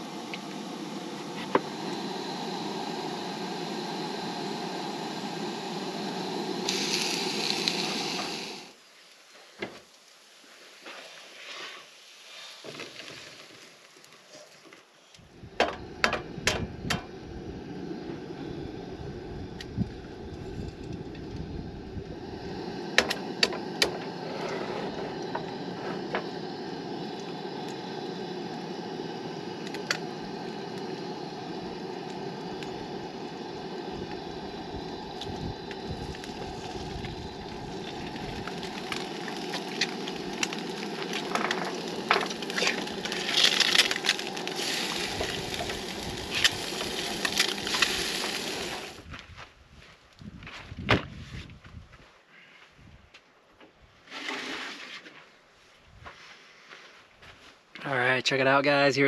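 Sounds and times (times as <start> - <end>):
food sizzling in a pan: 0.0 - 9.2, 22.1 - 49.0
camp stove burner hiss: 0.0 - 49.2.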